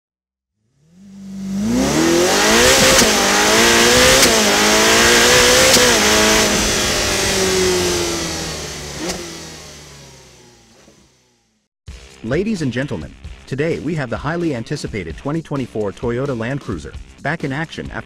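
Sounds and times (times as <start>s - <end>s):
car engine accelerating: 0.6s - 11.7s.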